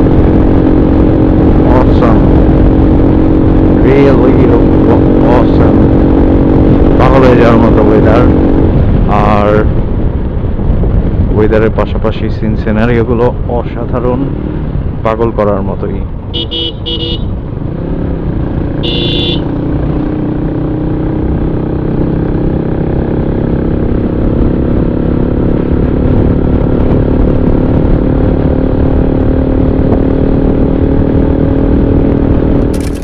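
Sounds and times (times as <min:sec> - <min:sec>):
wind and road noise: 0:00.0 - 0:33.0
motorcycle engine running: 0:16.3 - 0:33.0
high-pitched horn toots: 0:16.4 - 0:17.3, 0:18.8 - 0:19.5.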